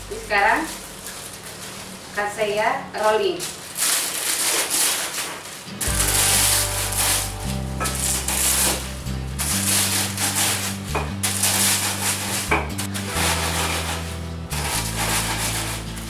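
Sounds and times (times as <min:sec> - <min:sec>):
rolling pin crushing cornflakes: 0:00.0 - 0:02.3, 0:03.4 - 0:16.0
background music with bass: 0:05.8 - 0:16.0.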